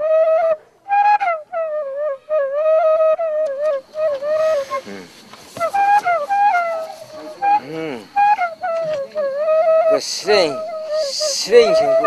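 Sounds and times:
flute melody: 0:00.0 - 0:12.0
soft breathy hiss: 0:03.7 - 0:12.0.

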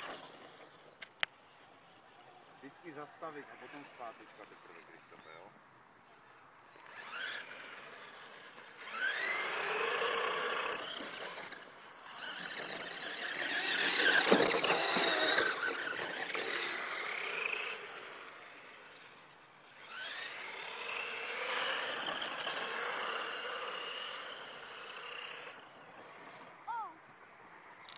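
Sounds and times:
toy truck electric motor whining: 0:06.1 - 0:26.6.

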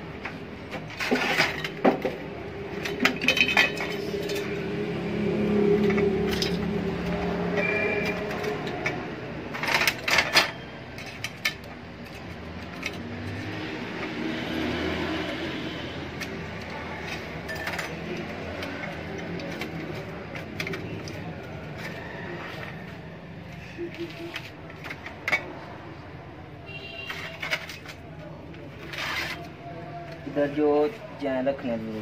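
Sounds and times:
metal parts clinking: 0:00.8 - 0:04.7, 0:05.8 - 0:07.0, 0:07.6 - 0:13.5, 0:16.2 - 0:21.9, 0:27.1 - 0:28.1.

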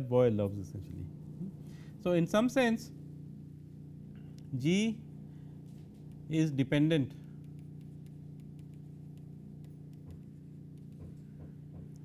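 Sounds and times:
steady low hum: 0:00.0 - 0:12.0
stylus tapping on pen tablet: 0:07.2 - 0:12.0.

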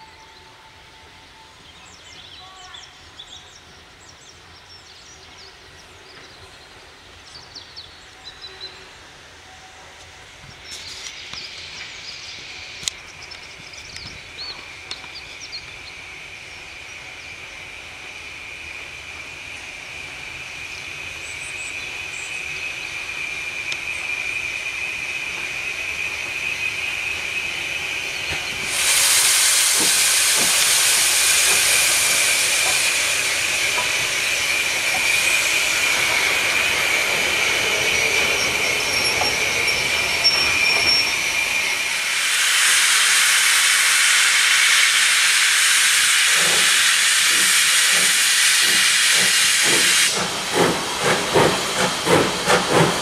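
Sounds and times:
loud hiss of steam: 0:05.8 - 0:53.0
high wheel squeal: 0:22.1 - 0:50.3.

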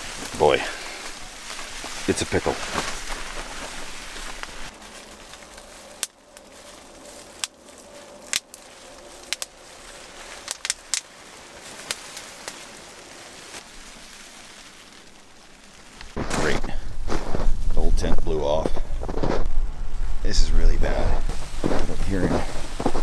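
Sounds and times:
bubble wrap crackling: 0:00.0 - 0:18.0
steady hiss: 0:00.0 - 0:18.7.

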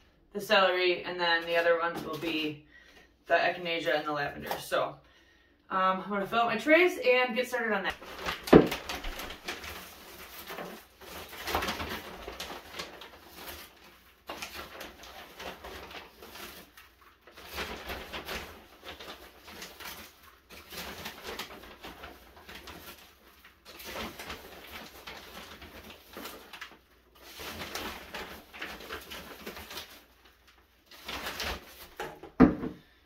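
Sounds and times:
plastic bowl knocking on wooden floor: 0:08.5 - 0:08.8, 0:32.0 - 0:32.9.

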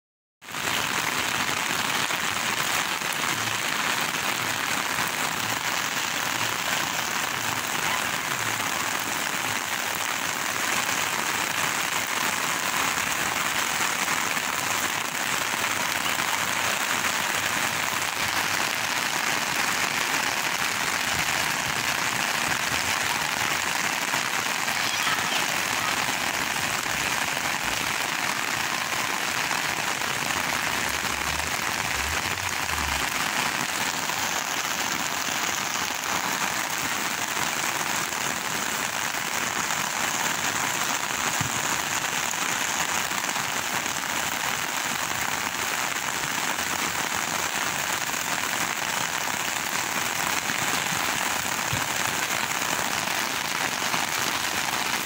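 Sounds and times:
rain falling steadily: 0:00.4 - 0:55.0.

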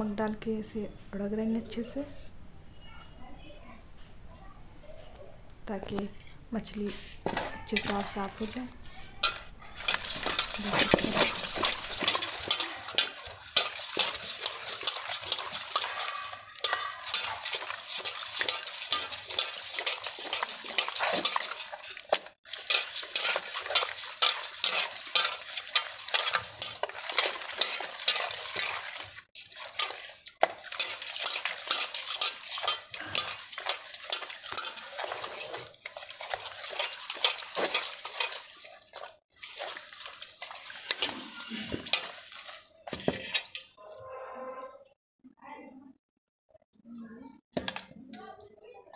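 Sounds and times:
salt scraping in metal basin: 0:06.0 - 0:43.8.

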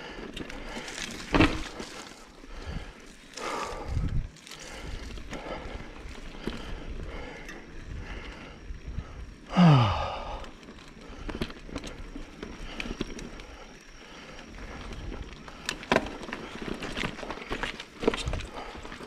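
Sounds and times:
bike clicks and knocks over bumps: 0:00.0 - 0:19.0
bike tyres rolling on dirt: 0:00.0 - 0:19.0
rider groaning sigh: 0:02.5 - 0:11.3.

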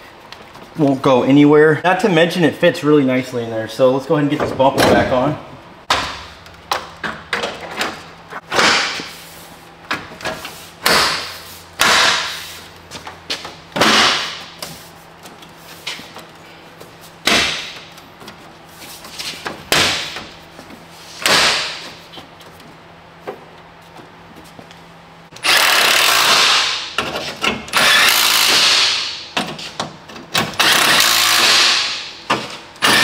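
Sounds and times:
grille snapping and thudding: 0:10.8 - 0:12.4, 0:13.4 - 0:14.7, 0:17.2 - 0:18.4, 0:19.3 - 0:20.4, 0:21.2 - 0:22.0.

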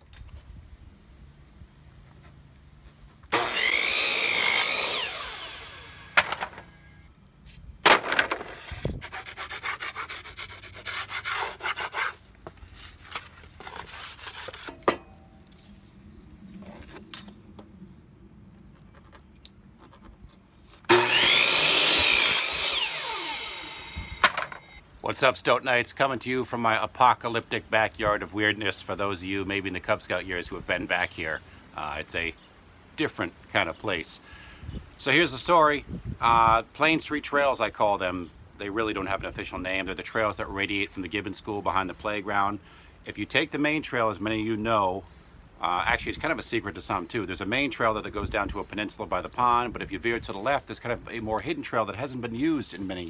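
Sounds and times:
miter saw blade whine: 0:03.3 - 0:07.1, 0:20.9 - 0:24.8.

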